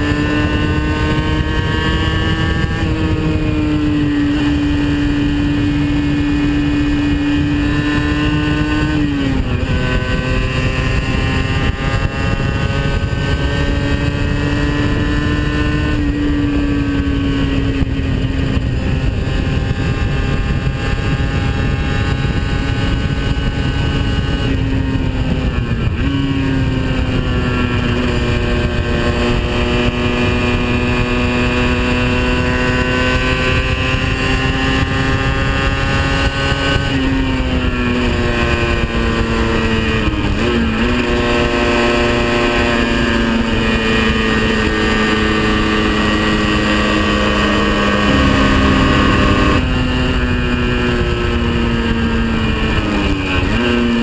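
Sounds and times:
motorcycle engine at high revs: 0:00.0 - 0:54.0
wind rush: 0:00.0 - 0:54.0.

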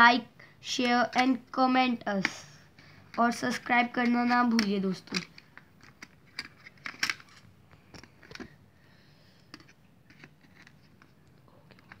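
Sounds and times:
plastic instruments clicking: 0:03.1 - 0:08.6.

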